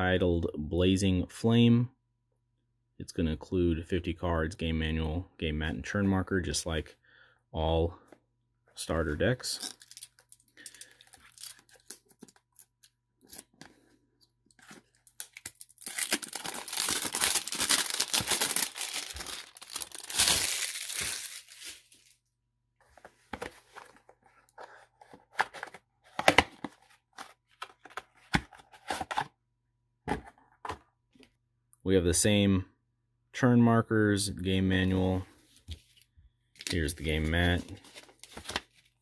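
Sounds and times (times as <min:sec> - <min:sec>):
plastic crinkles: 0:15.0 - 0:22.1
plastic wrap tearing and crackling: 0:15.1 - 0:22.1.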